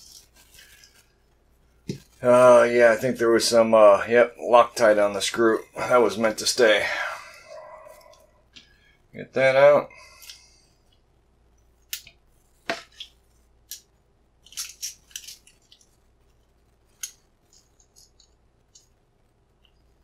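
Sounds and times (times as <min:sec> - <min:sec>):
padlock parts clicking and scraping: 0:13.7 - 0:16.0, 0:16.9 - 0:19.0.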